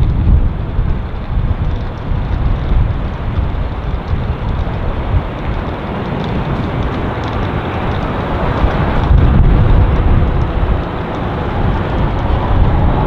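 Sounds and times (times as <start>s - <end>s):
jet engines roaring: 1.8s - 13.0s.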